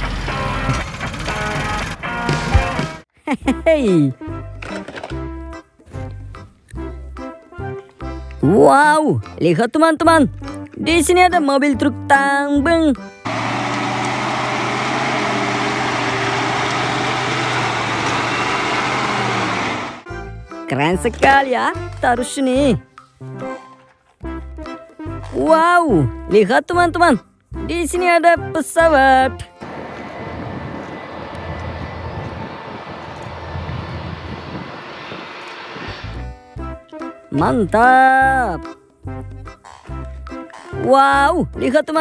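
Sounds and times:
diesel truck engine running: 13.2s - 20.1s, 29.6s - 36.3s.

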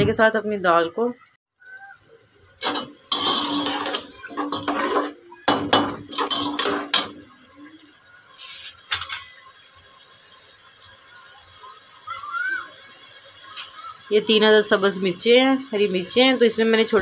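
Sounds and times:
metal spoon scraping a pot: 2.6s - 7.3s.

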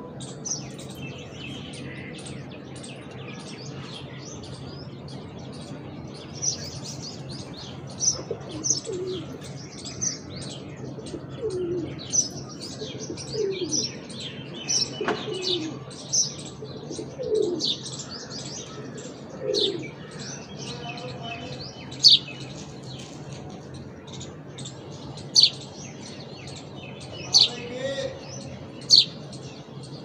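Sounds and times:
small birds chirping: 0.0s - 30.0s
low falling bird calls: 0.5s - 15.9s, 16.5s - 29.8s.

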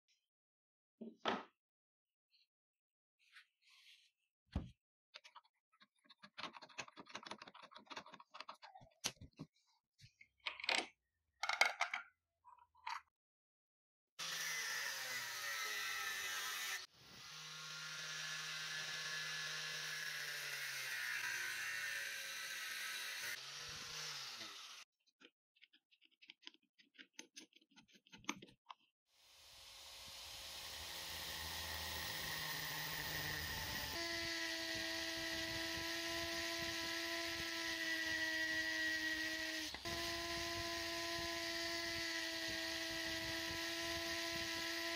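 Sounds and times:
angle grinder whirring: 14.2s - 24.8s, 29.3s - 44.9s.

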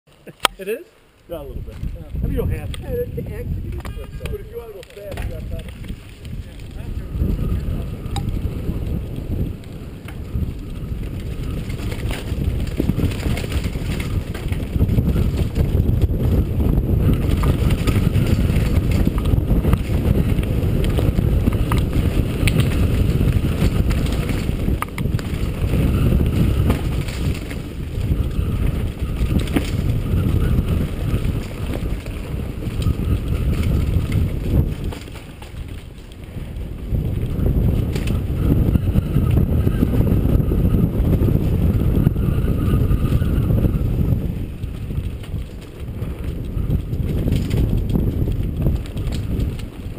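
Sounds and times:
bike tyre noise: 0.1s - 49.9s
bike clicks and rattles: 1.2s - 49.9s
wind rushing over microphone: 1.3s - 49.9s.

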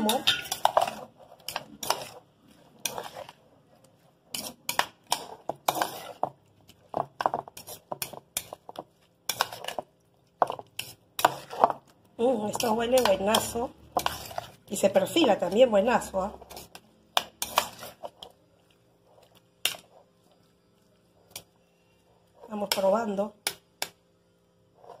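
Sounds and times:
metal spoon scraping a bowl: 0.0s - 3.5s, 4.2s - 11.8s, 12.4s - 18.3s, 24.7s - 25.0s.

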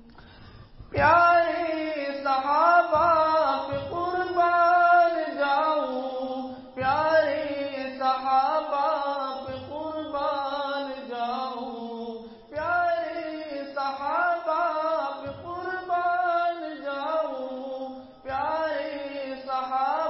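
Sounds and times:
singer breathing: 0.0s - 0.9s, 6.4s - 6.8s, 12.2s - 12.5s
solo voice singing unaccompanied: 0.9s - 20.0s.

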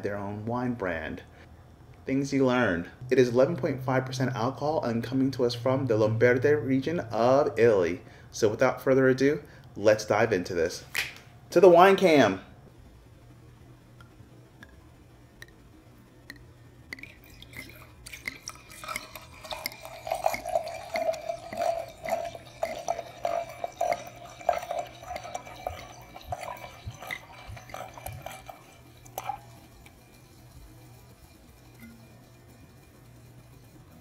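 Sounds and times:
wine glugging into a glass: 16.9s - 29.9s.

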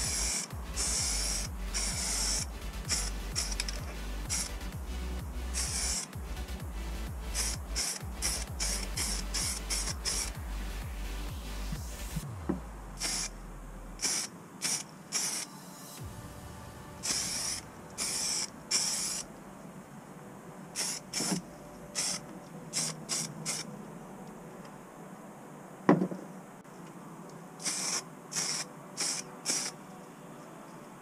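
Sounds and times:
aerosol spray can hissing: 0.0s - 4.6s, 5.5s - 10.4s, 13.0s - 13.3s, 14.0s - 19.3s, 20.8s - 21.4s, 27.6s - 29.8s.

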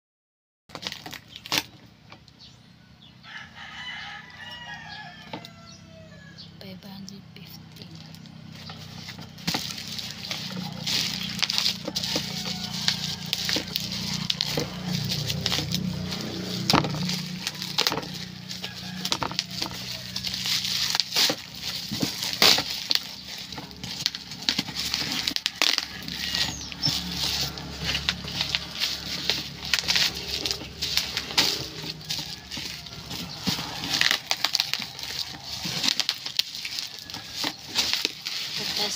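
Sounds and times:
packaging snapping: 0.7s - 1.8s, 8.0s - 38.9s
plastic wrap and cardboard crinkling: 0.7s - 2.0s, 7.4s - 38.9s
rooster crowing: 2.8s - 6.6s, 9.7s - 38.9s.

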